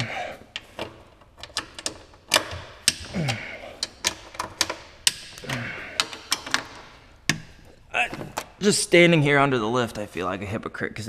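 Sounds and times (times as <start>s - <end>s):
hand ratchet clicking: 1.5s - 7.4s.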